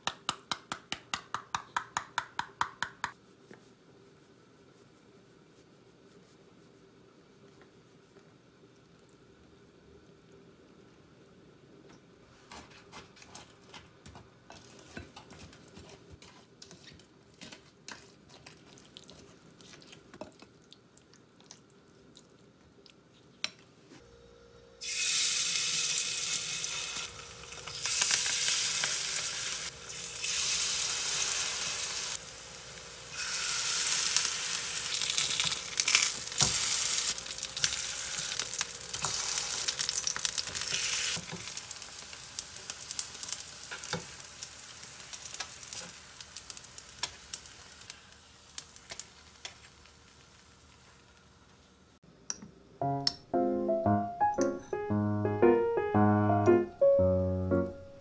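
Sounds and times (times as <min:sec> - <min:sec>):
wooden spoon stirring batter: 0:12.5 - 0:20.6
pancakes sizzling in oil: 0:24.8 - 0:51.9.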